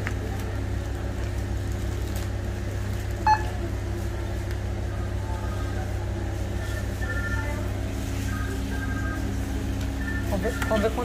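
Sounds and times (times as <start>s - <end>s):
steady low hum: 0.0s - 11.0s
barcode scanner beep: 3.2s - 3.6s.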